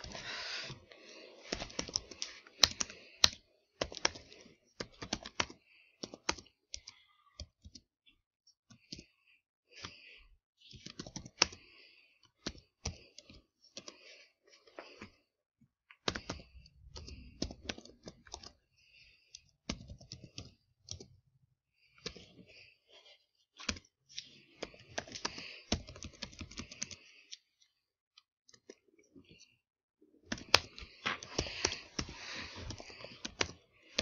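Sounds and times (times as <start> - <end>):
typing on computer keyboard: 1.5 - 7.8, 10.7 - 11.7, 16.0 - 18.6, 19.6 - 21.1, 23.6 - 23.9, 24.5 - 27.4, 30.3 - 34.0.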